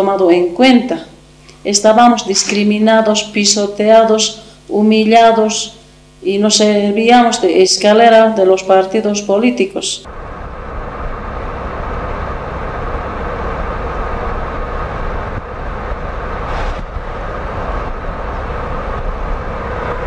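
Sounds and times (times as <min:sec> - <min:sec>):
vehicle road and engine noise: 0:10.1 - 0:20.0.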